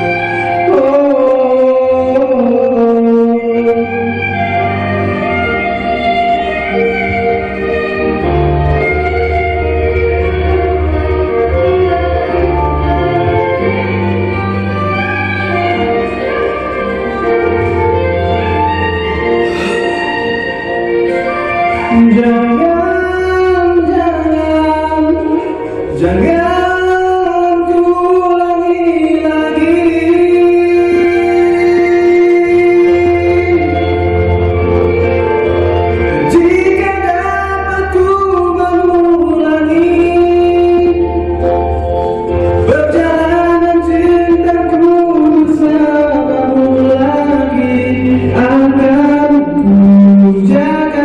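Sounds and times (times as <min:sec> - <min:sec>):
man singing into microphone: 0:00.0 - 0:06.8, 0:21.1 - 0:51.0.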